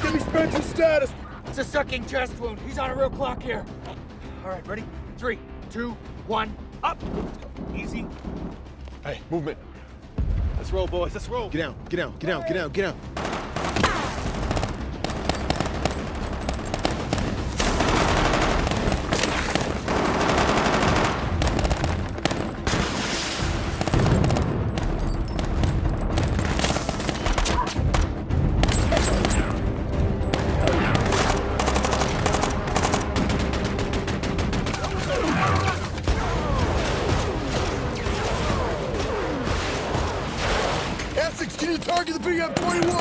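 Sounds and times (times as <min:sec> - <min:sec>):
automatic gunfire bursts: 0:14.5 - 0:22.5
explosions: 0:21.2 - 0:27.4.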